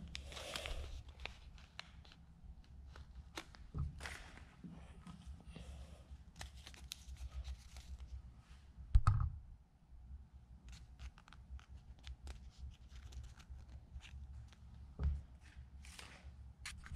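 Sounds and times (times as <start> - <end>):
paper crinkling: 0.0 - 4.6, 6.3 - 8.2, 10.7 - 14.8.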